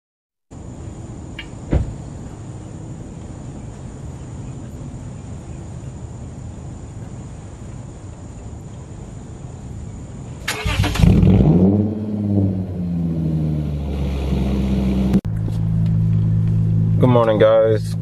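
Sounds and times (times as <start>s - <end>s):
car engine revving and idling: 10.5s - 18.0s.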